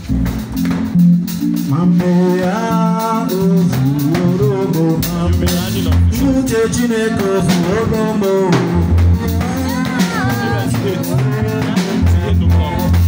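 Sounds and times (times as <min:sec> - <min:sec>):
live band playing: 0:00.0 - 0:13.0
man singing into a microphone: 0:01.7 - 0:13.0.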